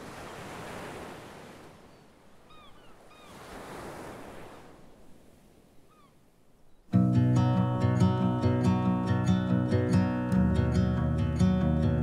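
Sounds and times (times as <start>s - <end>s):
surf on rocky shore: 0.0s - 5.7s
bird calls: 1.8s - 3.5s, 5.8s - 7.0s.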